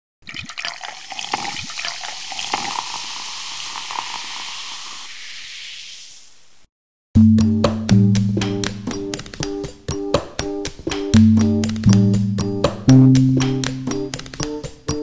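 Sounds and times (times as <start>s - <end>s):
carbonated drink fizzing: 0.2s - 6.4s.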